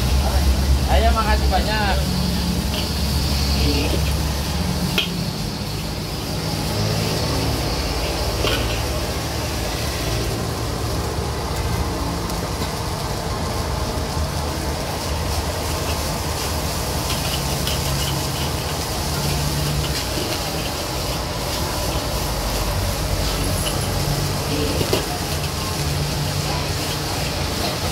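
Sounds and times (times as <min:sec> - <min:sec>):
gas flame rushing: 0:00.0 - 0:27.9
rice sizzling: 0:00.0 - 0:27.9.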